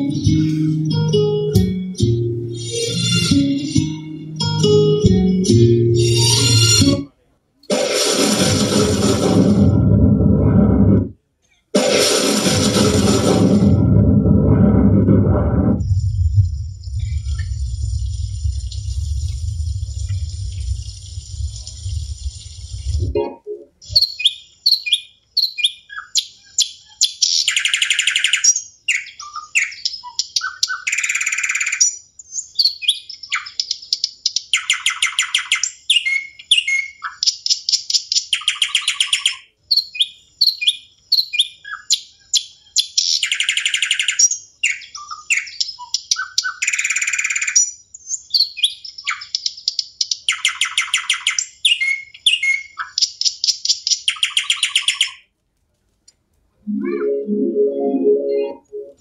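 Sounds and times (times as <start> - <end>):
bird chirps and whistles: 23.8 - 33.6, 34.6 - 37.3, 38.3 - 49.4, 50.3 - 53.0.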